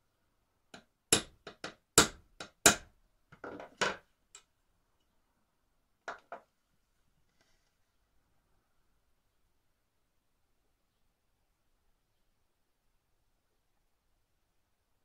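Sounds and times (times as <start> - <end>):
small hammer tapping metal: 0.8 - 2.8.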